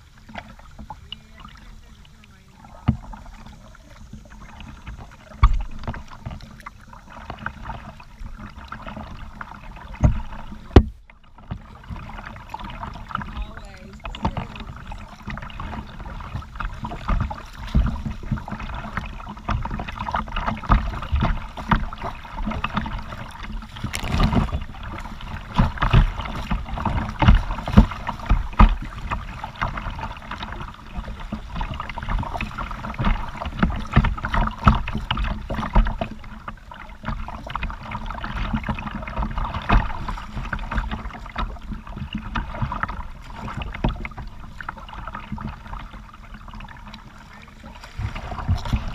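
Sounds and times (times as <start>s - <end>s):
paddle splashing in water: 0.0s - 48.9s
water sloshing against hull: 0.0s - 48.9s
knocks on plastic hull: 9.8s - 36.4s, 48.0s - 48.9s.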